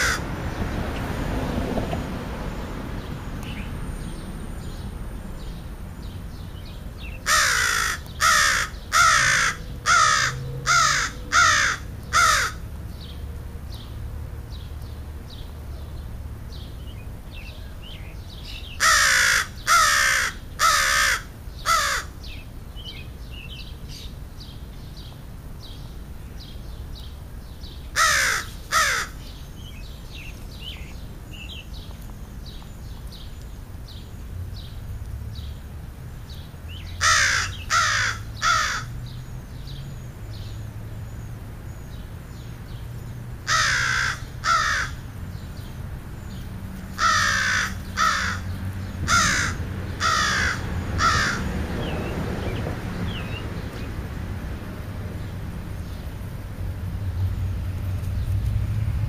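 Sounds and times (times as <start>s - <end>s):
crows cawing: 0.0s - 0.2s, 7.2s - 12.7s, 18.8s - 22.2s, 28.0s - 29.2s, 37.0s - 39.0s, 43.4s - 45.0s, 47.0s - 51.5s
small birds chirping: 3.0s - 54.1s, 54.7s - 58.6s.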